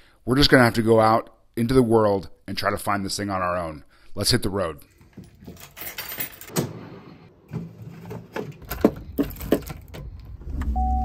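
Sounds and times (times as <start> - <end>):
keys jangling: 5.1 - 6.5.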